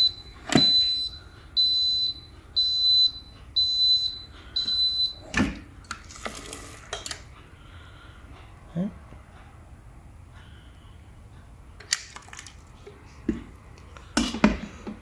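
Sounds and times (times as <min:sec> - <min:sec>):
pressure cooker beeping: 0:00.0 - 0:05.3.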